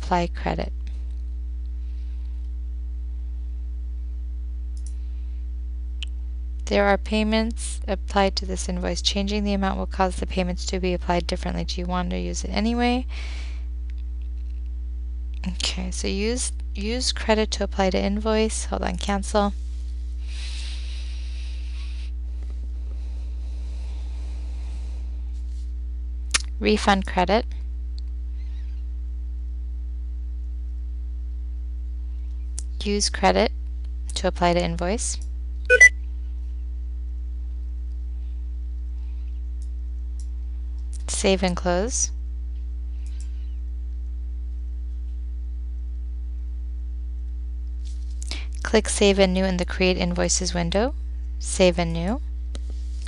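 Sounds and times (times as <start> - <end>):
low electrical hum: 0.0 - 53.0.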